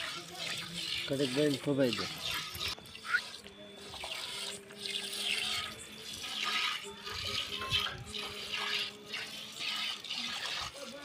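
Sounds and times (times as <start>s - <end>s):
milk squirting into metal pail: 0.0s - 11.0s.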